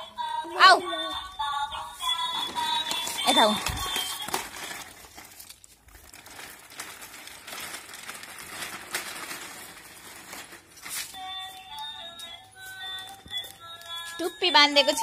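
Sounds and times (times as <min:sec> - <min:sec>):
background music: 0:00.0 - 0:03.6, 0:11.2 - 0:15.0
plastic wheels rattling over bricks: 0:02.2 - 0:11.0.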